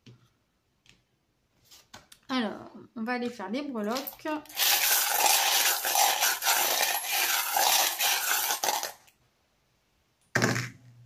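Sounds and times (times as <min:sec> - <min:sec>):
pieces clattering onto a board: 0:03.9 - 0:09.1
small pieces rattling in hands: 0:03.9 - 0:09.1.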